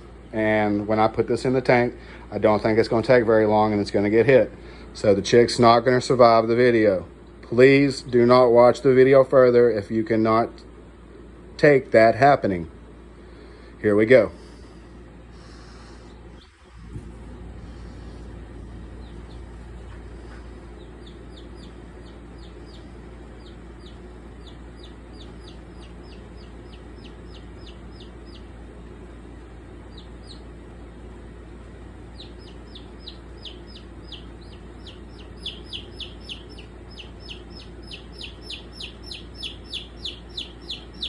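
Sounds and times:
low steady hum: 0.0 - 41.0
young chick peeping: 15.4 - 41.0.

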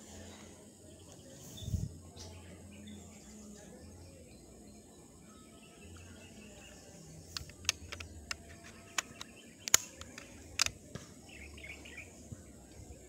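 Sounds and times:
air rifle handling clicks: 7.2 - 11.1.

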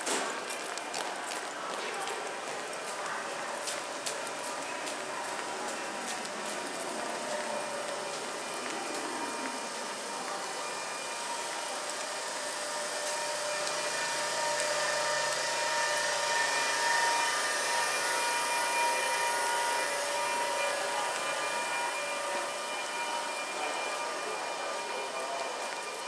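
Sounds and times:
train wheels rolling on rail: 0.0 - 26.0
electric motor whine: 8.5 - 23.8.

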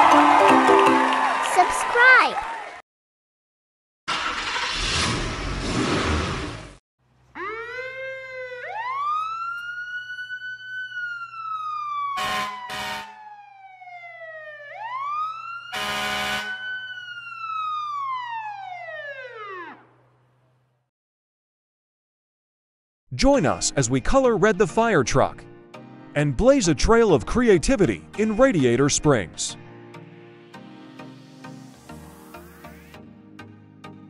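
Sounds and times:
fire truck siren wailing: 7.4 - 20.1
short harsh horn blasts: 12.2 - 13.2, 15.8 - 16.6.

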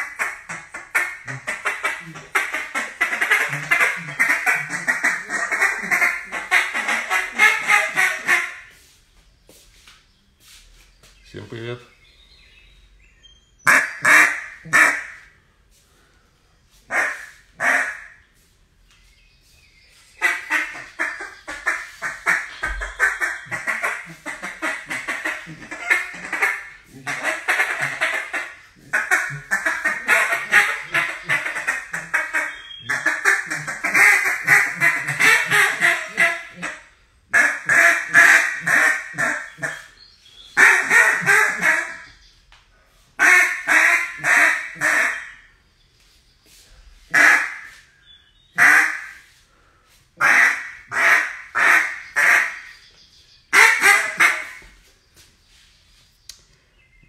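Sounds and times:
duck call quacks: 0.0 - 8.8, 13.7 - 15.3, 16.9 - 18.2, 20.2 - 40.0, 40.6 - 42.1, 43.2 - 45.5, 47.1 - 47.8, 48.6 - 49.3, 50.2 - 52.7, 53.5 - 54.7.

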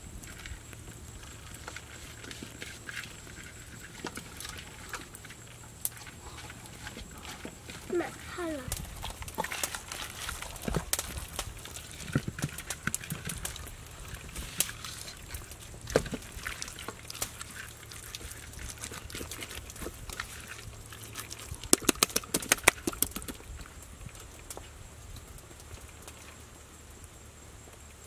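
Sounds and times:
hands kneading marinade into meat: 0.5 - 23.5.

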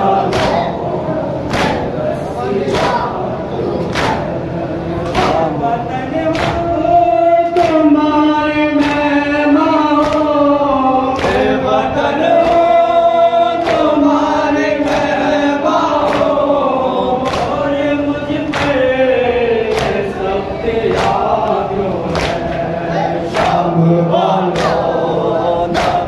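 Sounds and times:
group chanting in unison: 0.0 - 26.0
person reciting on a microphone: 0.0 - 26.0
chest-beating slaps: 0.3 - 0.8, 1.5 - 2.0, 2.7 - 3.1, 3.9 - 4.4.

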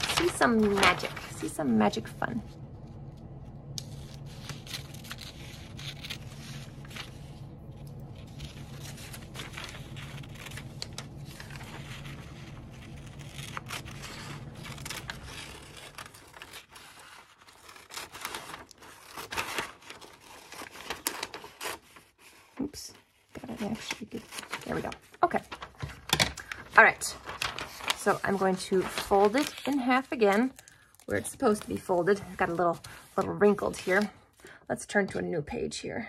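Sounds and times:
paper rustling: 0.0 - 2.1, 3.7 - 34.3
steady low hum: 0.0 - 21.3, 22.6 - 35.2
scissors snipping paper: 8.2 - 22.3.

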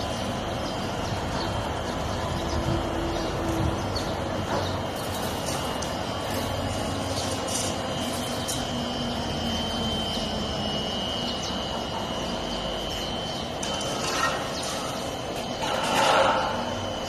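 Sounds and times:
high steady whine: 0.0 - 17.0.

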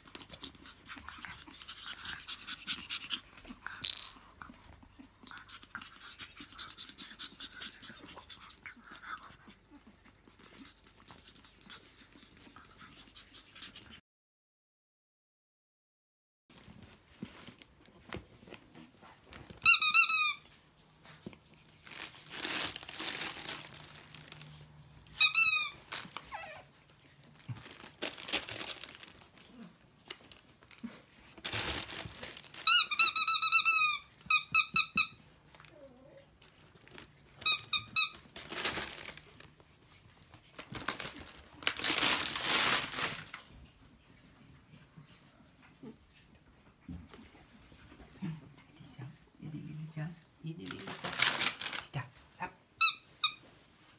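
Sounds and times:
rustling and crinkling: 16.5 - 34.4, 35.2 - 48.6, 50.5 - 52.3
rubber squeaky toy squeaking: 19.6 - 20.5, 25.1 - 26.6, 32.6 - 35.2, 37.4 - 38.3, 52.8 - 53.4.

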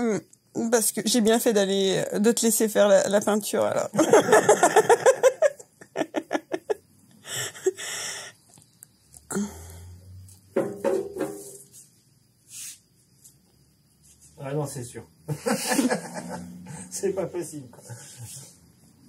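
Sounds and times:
breathy noises: 7.2 - 10.2.

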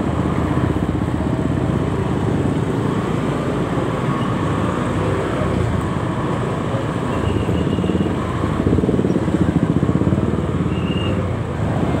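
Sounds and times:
motorcycle engines running: 0.0 - 12.0.

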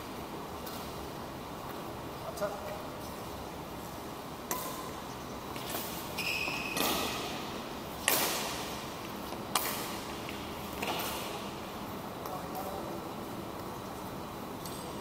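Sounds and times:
rackets striking shuttlecock: 4.4 - 11.6
short high squeak: 6.2 - 6.8.

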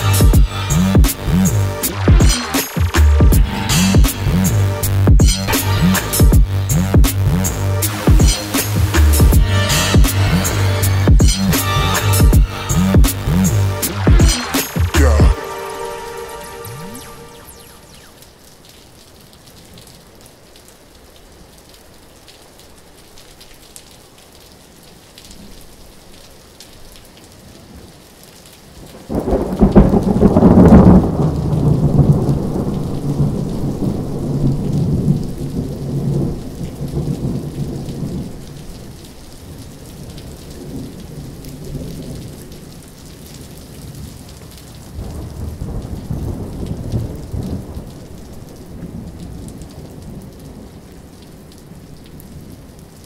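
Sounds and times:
steady rain: 0.0 - 53.0
thunder clap and rumble: 28.9 - 38.6, 44.9 - 50.4.

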